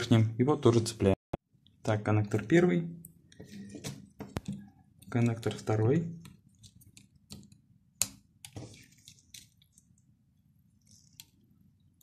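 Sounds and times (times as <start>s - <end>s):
glove rubbing: 8.5s - 10.1s.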